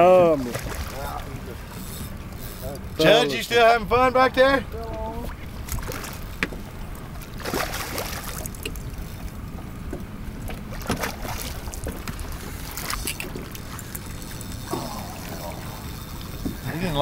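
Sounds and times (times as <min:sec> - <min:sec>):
water noise: 0:00.0 - 0:17.0
wind: 0:00.0 - 0:17.0
fish splashing: 0:05.3 - 0:09.1, 0:10.5 - 0:16.9.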